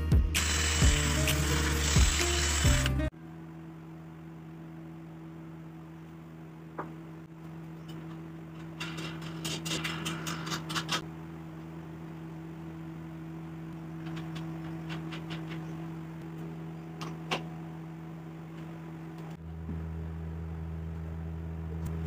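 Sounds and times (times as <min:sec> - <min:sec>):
steady low hum: 0:00.0 - 0:22.0
wooden parts clicking and scraping: 0:14.0 - 0:15.8.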